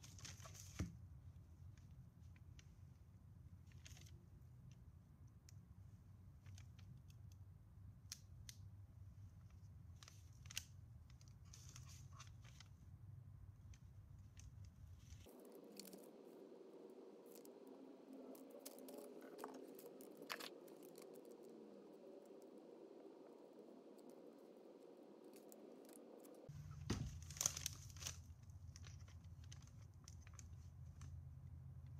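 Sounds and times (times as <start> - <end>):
low steady hum: 0.0 - 31.9
hands handling paper crinkling: 17.2 - 21.8, 25.3 - 31.3.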